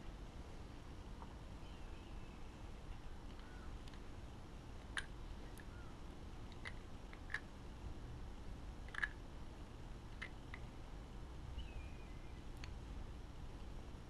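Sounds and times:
low steady hum: 0.0 - 14.0
metal bearing clicks: 8.9 - 9.2.

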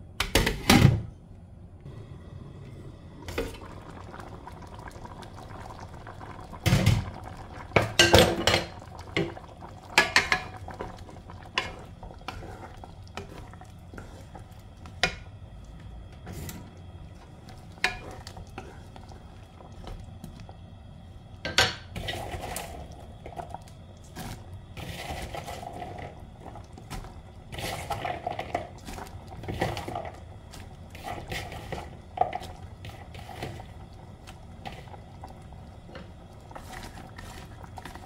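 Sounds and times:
wooden spatula scraping a pan: 11.5 - 15.2.

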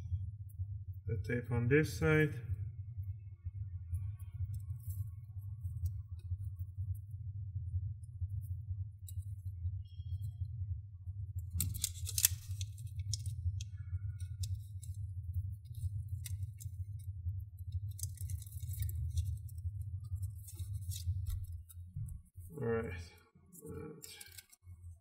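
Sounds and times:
steady low hum: 0.0 - 25.0
small plastic clicks: 11.4 - 15.0
tape rustling crinkles: 11.4 - 22.5, 23.5 - 25.0.

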